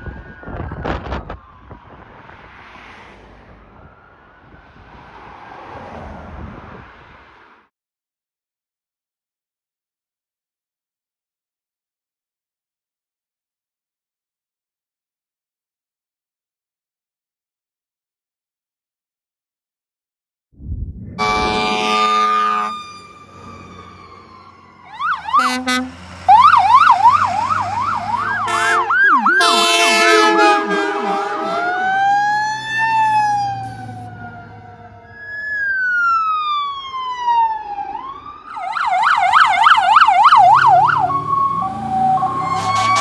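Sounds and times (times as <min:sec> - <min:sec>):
emergency sirens wailing and yelping: 0:00.0 - 0:06.2, 0:21.2 - 0:43.0
short horn blasts: 0:21.2 - 0:22.9, 0:25.3 - 0:26.0, 0:28.4 - 0:32.0, 0:33.6 - 0:34.1, 0:42.4 - 0:43.0.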